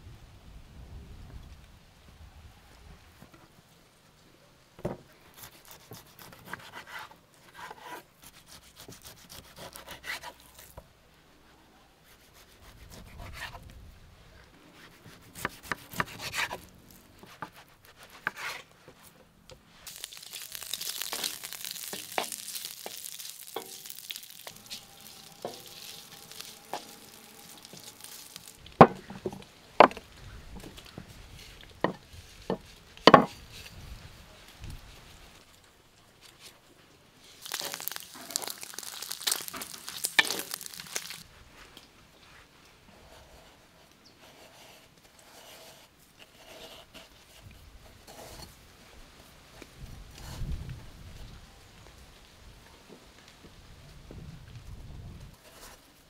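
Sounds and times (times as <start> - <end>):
stirring and scraping: 14.8 - 33.8, 37.3 - 41.2
food sizzling in a pan: 19.7 - 28.9, 37.4 - 41.2.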